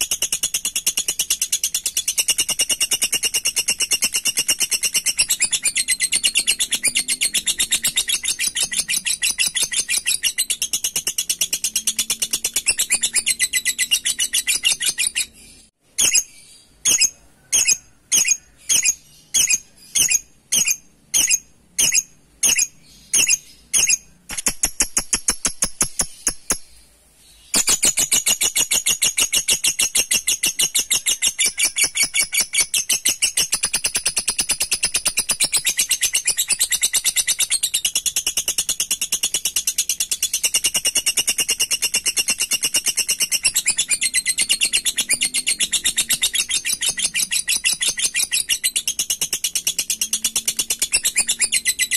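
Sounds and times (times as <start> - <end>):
lovebird chattering trill: 0.0 - 26.8, 27.5 - 51.9.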